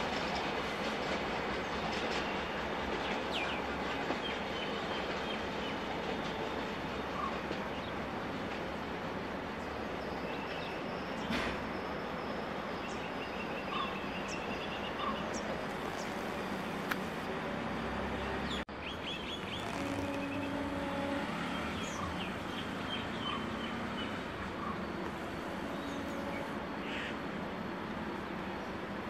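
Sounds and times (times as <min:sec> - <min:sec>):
outdoor background noise: 0:00.0 - 0:29.0
small birds chirping: 0:12.9 - 0:17.3, 0:18.4 - 0:20.7.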